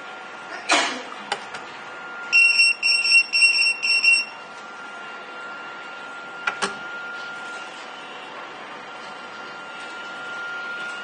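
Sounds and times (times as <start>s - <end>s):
high-pitched pager beeps: 2.3s - 4.4s.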